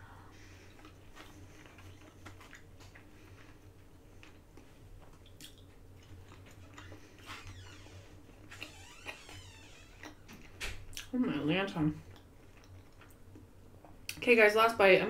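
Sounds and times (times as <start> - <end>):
person chewing food: 0.4 - 7.6, 12.0 - 14.2.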